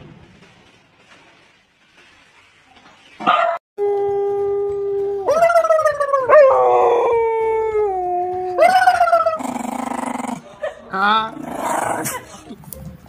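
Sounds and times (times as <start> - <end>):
dog howling: 3.8 - 10.2.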